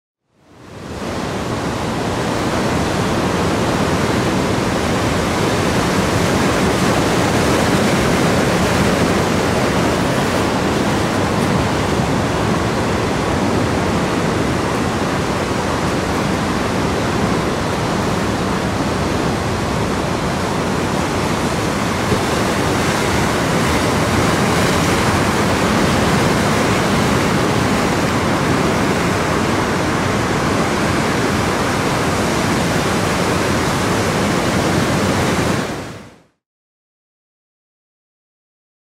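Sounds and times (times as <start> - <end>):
ocean surf rushing: 0.4 - 36.4.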